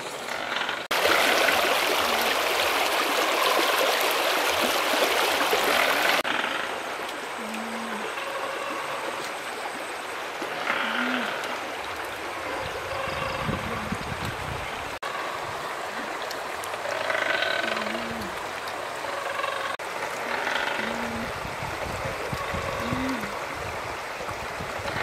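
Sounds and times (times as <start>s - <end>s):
stream rushing over rocks: 0.0s - 25.0s
faint calls: 10.4s - 11.7s, 15.2s - 21.3s.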